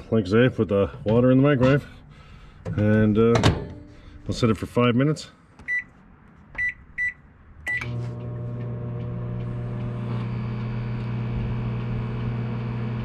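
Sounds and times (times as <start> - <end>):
microwave keypad beeps: 5.7 - 5.9, 6.6 - 7.9
microwave humming: 7.7 - 13.0.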